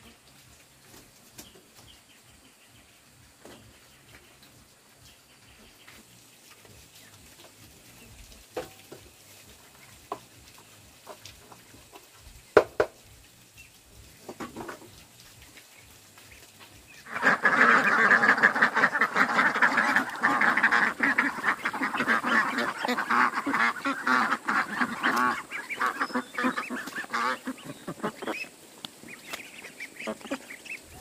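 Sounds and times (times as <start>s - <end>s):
poultry flock calling: 16.2s - 31.0s.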